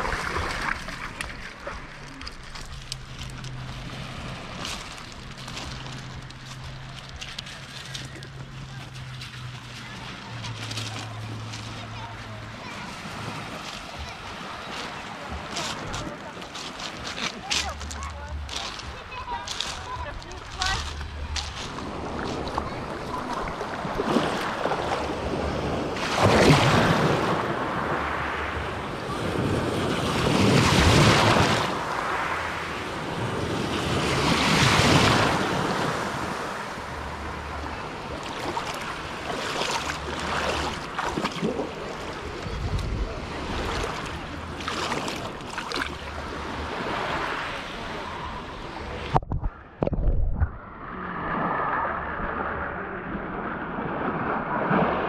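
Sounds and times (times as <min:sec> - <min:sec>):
small waves washing over pebbles: 0:00.0 - 0:49.1
wind on microphone: 0:40.8 - 0:44.6, 0:48.3 - 0:55.0.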